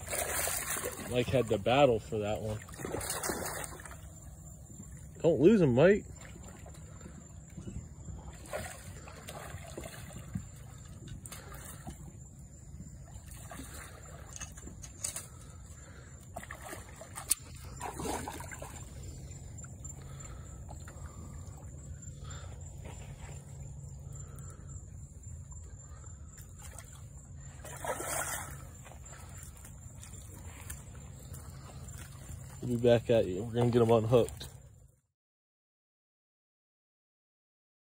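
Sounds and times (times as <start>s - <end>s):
high-pitched insect trill: 0.0s - 34.6s
water sloshing and splashing: 0.0s - 34.9s.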